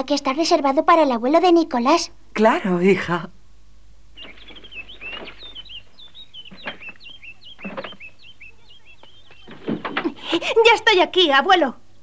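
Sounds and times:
small birds chirping: 3.9s - 12.0s
soft thumps: 4.2s - 8.2s, 9.0s - 10.2s.

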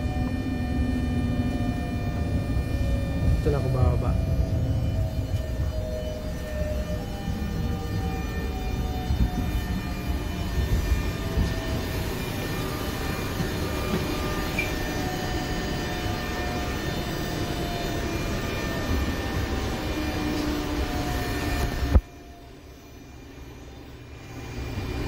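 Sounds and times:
train interior rumble: 1.4s - 15.1s.

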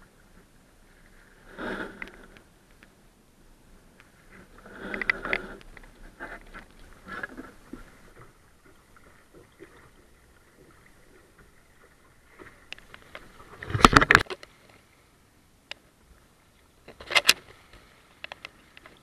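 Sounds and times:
water splashing at hull: 4.1s - 15.2s.

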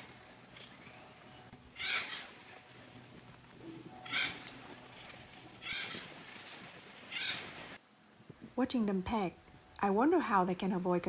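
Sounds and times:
woodpecker harsh raspy calls: 1.8s - 2.4s, 4.0s - 4.6s, 5.6s - 6.1s, 7.1s - 7.5s.

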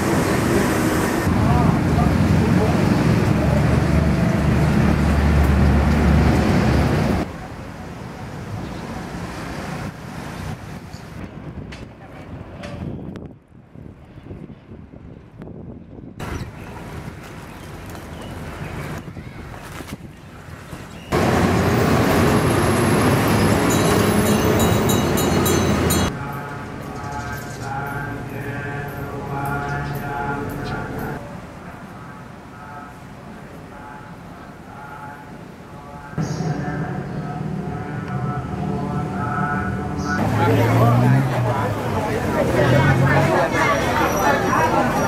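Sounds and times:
bus driving past: 0.0s - 11.1s, 21.1s - 32.7s, 36.2s - 45.0s
road traffic noise: 0.0s - 45.0s
low outdoor rumble: 35.8s - 45.0s.

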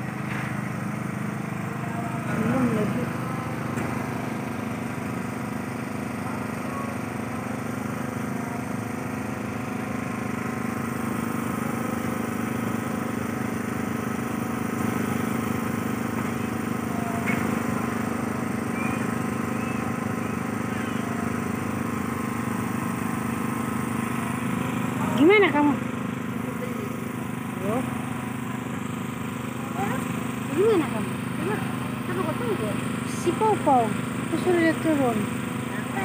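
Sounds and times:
small engine humming steadily: 0.0s - 36.0s.

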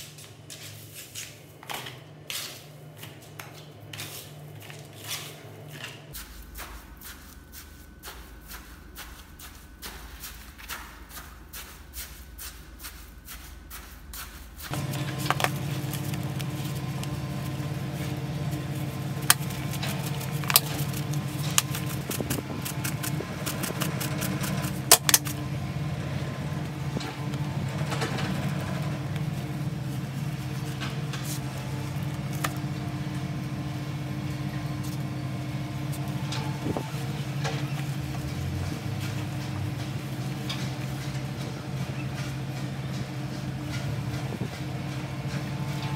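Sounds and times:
low mechanical hum: 0.0s - 45.9s
stick scraping soil in bucket: 14.7s - 25.4s.

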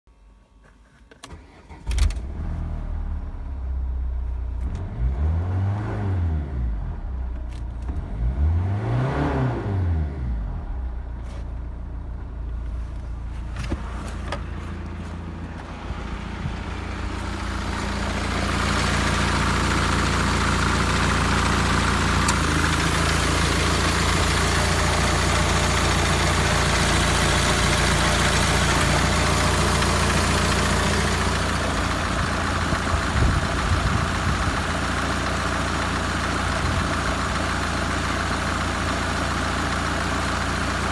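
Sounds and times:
diesel engine starting and idling: 1.2s - 40.9s
engine revving: 4.6s - 7.2s, 7.8s - 11.0s, 15.7s - 34.7s.

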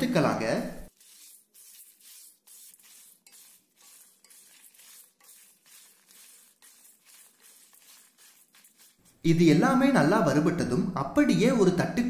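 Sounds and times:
lentils scraping in a dry pan: 0.8s - 10.0s.

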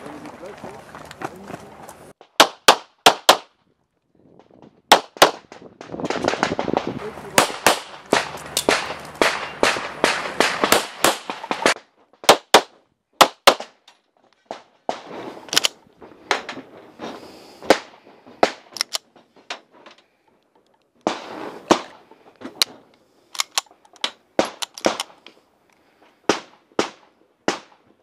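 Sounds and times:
pistol shots with echo: 7.3s - 13.7s.

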